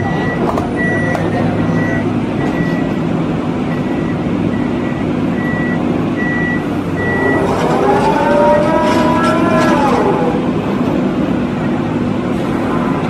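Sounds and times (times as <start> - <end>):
diesel engine running: 0.0 - 13.0
hydraulic whine: 6.6 - 11.3
warning beeper: 7.0 - 10.5.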